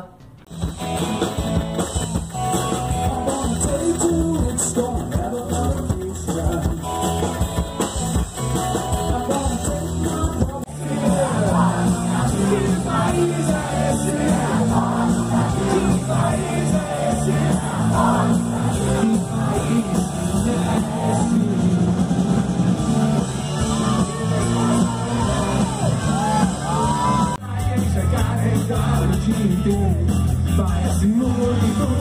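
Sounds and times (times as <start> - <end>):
live rock band playing: 0.1 - 32.0
man singing: 2.9 - 6.9, 8.9 - 21.8, 23.7 - 32.0.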